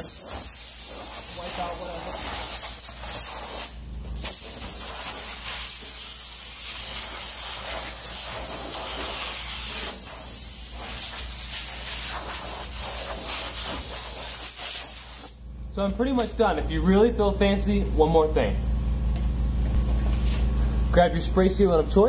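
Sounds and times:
sprayer hissing: 0.0 - 15.4.

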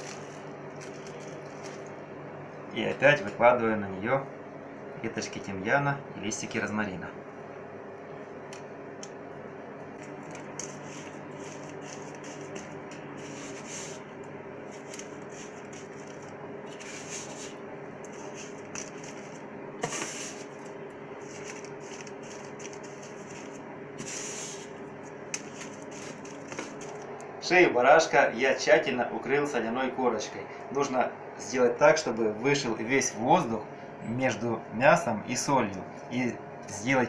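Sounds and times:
steady background hum: 0.0 - 37.0
scratchy rustles: 10.0 - 14.0, 14.7 - 24.8, 25.4 - 27.0.

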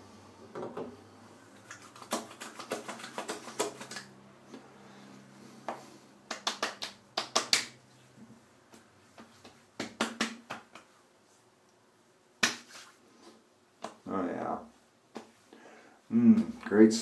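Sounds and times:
hands patting skin: 1.6 - 4.6, 5.7 - 7.8, 8.7 - 11.4, 12.4 - 14.0, 15.1 - 15.4.

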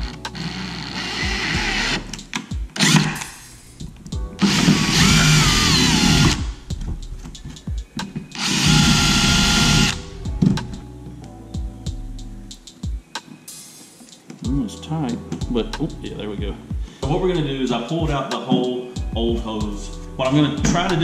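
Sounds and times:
cordless drill whining: 0.0 - 2.1, 2.8 - 3.4, 4.4 - 6.6, 8.4 - 10.0.

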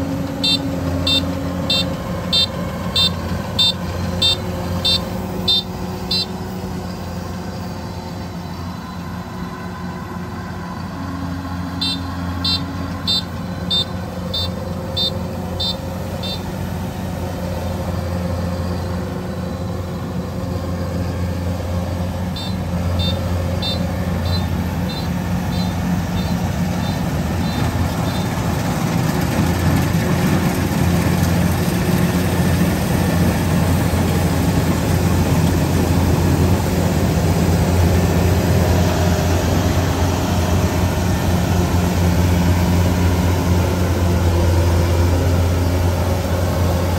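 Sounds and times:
combine harvester diesel engine droning: 0.0 - 46.9
short high beeps: 0.4 - 6.4, 11.8 - 16.5, 22.3 - 28.2.

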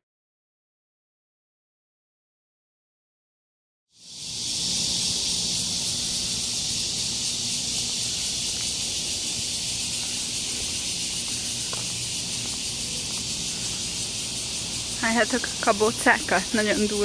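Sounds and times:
cicadas shrilling: 3.9 - 17.0.

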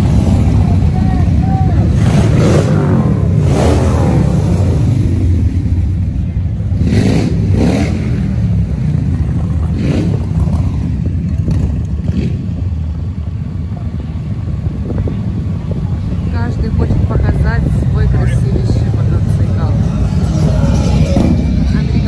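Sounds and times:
motorcycle engine running: 0.0 - 22.0
wind noise on microphone: 14.4 - 22.0.

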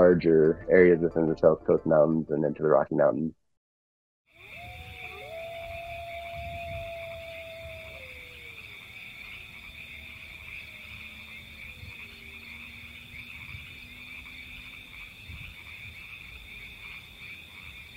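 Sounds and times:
frogs trilling: 4.3 - 17.9.

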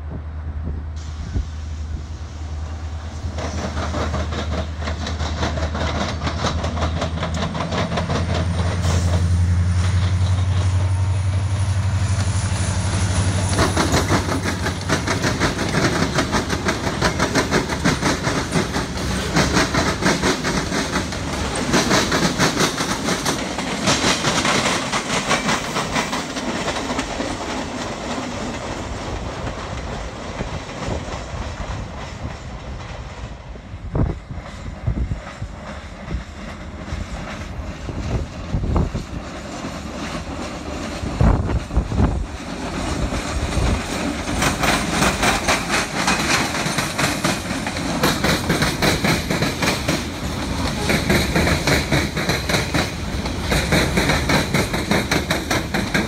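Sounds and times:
diesel locomotive engine drone: 0.0 - 56.0
train wheels clicking over rail joints: 2.6 - 56.0.

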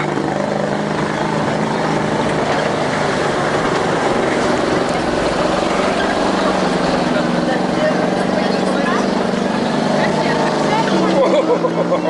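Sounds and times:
loud rush of water: 0.0 - 12.0
truck engine running: 0.0 - 12.0.

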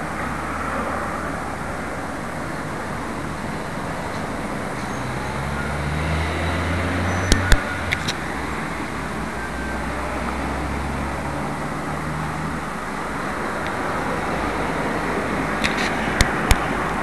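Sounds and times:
road traffic noise: 0.0 - 17.0
sharp clicks: 7.2 - 8.2, 15.6 - 16.7.

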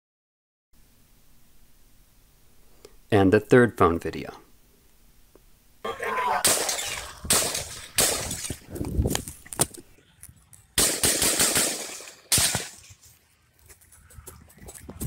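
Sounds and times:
rifle gunshots echoing: 6.4 - 8.6, 10.8 - 12.8.

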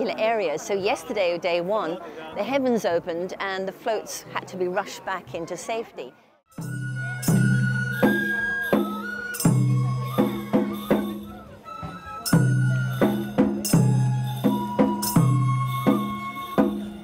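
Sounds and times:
ringing struck percussion: 6.5 - 11.6, 12.2 - 17.0
bamboo flute melody: 6.5 - 17.0.

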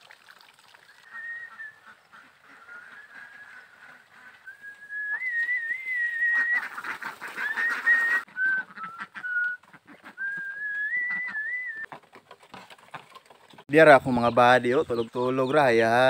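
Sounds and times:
person whistling a tune: 1.1 - 1.7, 4.5 - 6.6, 7.5 - 9.6, 10.2 - 11.9
rustling and crackling: 11.8 - 13.7.

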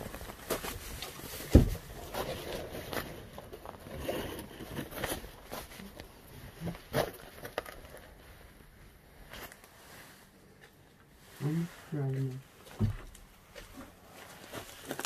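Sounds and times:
footsteps on wood: 12.7 - 14.8.

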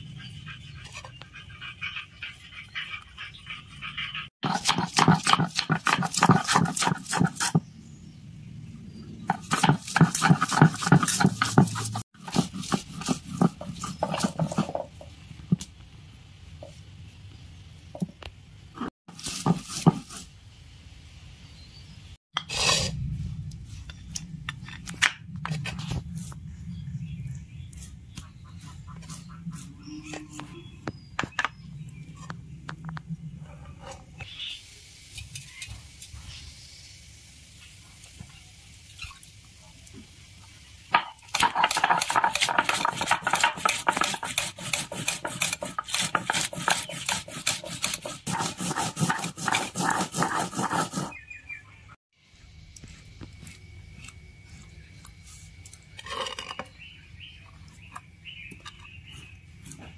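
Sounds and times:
stone crushing garlic and ginger: 4.4 - 7.6, 9.3 - 15.7, 40.9 - 51.2
stone scraping on stone: 40.9 - 51.2.

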